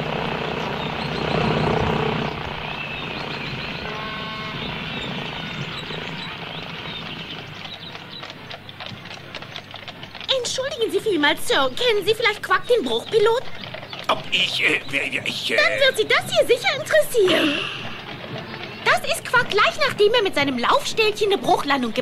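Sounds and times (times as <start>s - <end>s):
aircraft engine droning: 0.0s - 7.4s.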